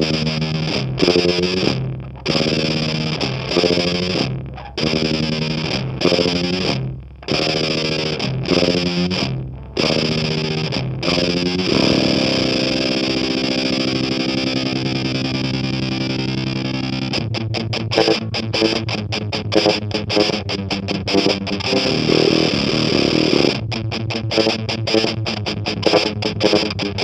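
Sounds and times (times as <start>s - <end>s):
distorted electric guitar chords: 0.0s - 27.0s.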